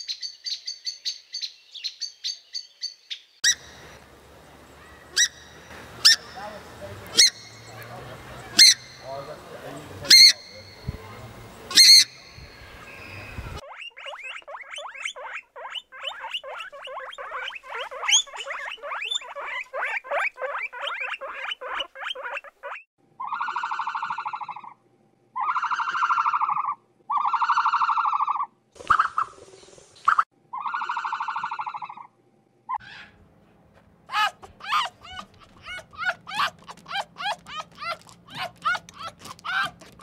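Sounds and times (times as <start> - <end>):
guinea pigs squeaking: 6.0 - 9.4, 13.4 - 24.7, 30.6 - 32.1, 34.1 - 40.0
animal scuffle: 33.1 - 40.0
animal long buzzing calls: 34.1 - 40.0.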